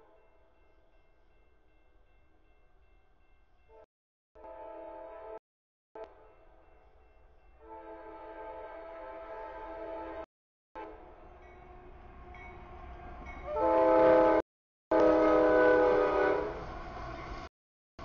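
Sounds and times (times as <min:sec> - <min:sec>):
locomotive air horn blasts: 0:04.4 - 0:05.4, 0:13.5 - 0:16.6.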